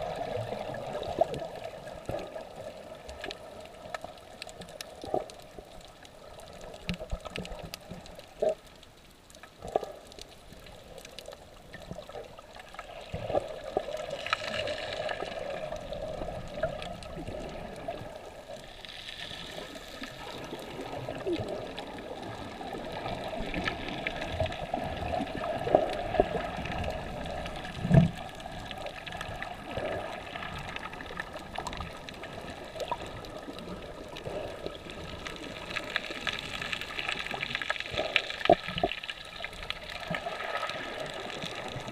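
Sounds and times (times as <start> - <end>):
underwater wash of breaking waves: 0.0 - 8.5, 9.6 - 41.9.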